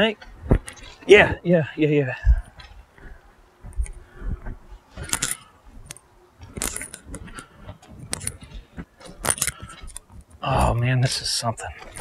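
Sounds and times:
footsteps on gravel: 0:02.1 - 0:12.0
metallic jingling: 0:05.0 - 0:10.5.

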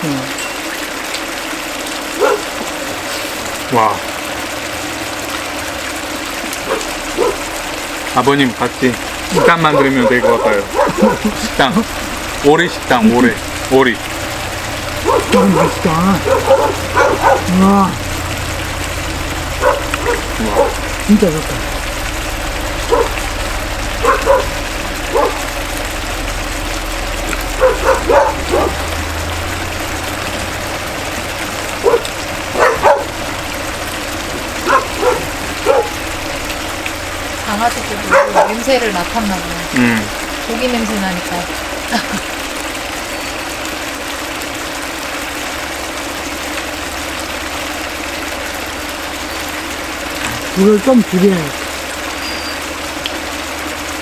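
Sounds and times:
running water: 0:00.0 - 0:54.0
low even hum: 0:01.4 - 0:50.6
dogs barking: 0:01.5 - 0:44.2.

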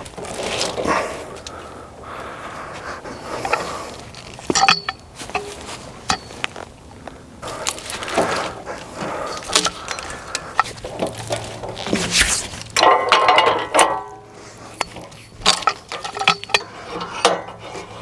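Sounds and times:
steel hook and log clanking: 0:03.2 - 0:06.6, 0:07.6 - 0:18.0.

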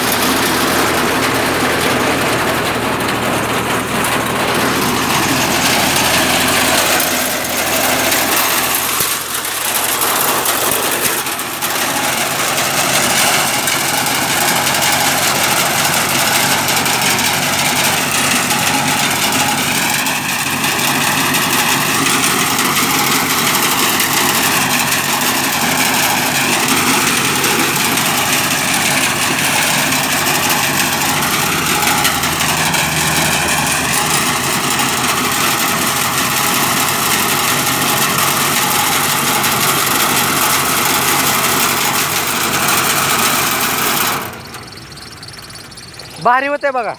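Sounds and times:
rotary tiller churning soil: 0:00.0 - 0:46.9
tractor engine running: 0:00.0 - 0:46.9
high wavering whine: 0:44.2 - 0:46.9.

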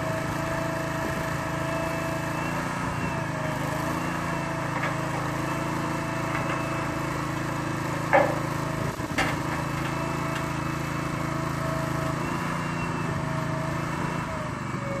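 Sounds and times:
small engine running: 0:00.0 - 0:15.0
sharp knocks: 0:08.0 - 0:08.5.

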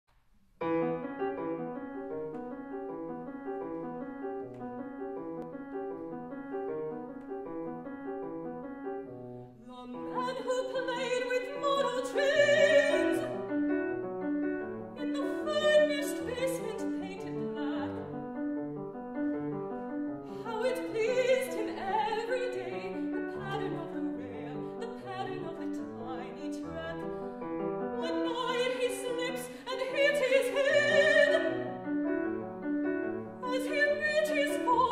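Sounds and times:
grand piano repeating figure: 0:00.6 - 0:34.9
woman singing with vibrato: 0:09.7 - 0:13.4, 0:15.0 - 0:18.0, 0:20.4 - 0:27.0, 0:28.0 - 0:31.6, 0:33.4 - 0:34.9.

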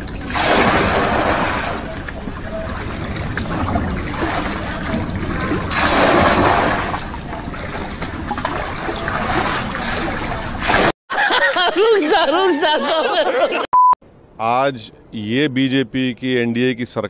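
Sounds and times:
bucket scooping water: 0:00.0 - 0:11.0
floodwater splashing and sloshing: 0:00.0 - 0:11.0.

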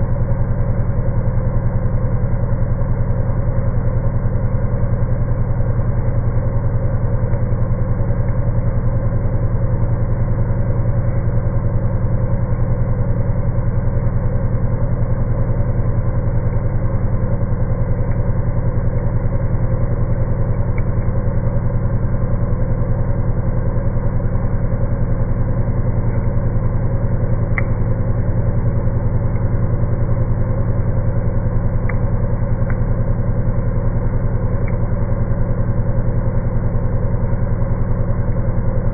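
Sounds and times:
milling spindle pulsing drone: 0:05.6 - 0:38.9.

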